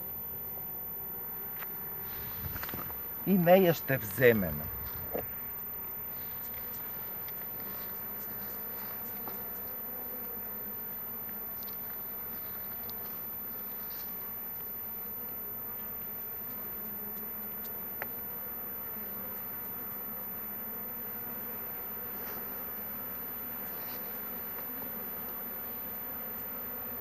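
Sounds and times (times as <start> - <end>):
bees buzzing: 0.0 - 27.0.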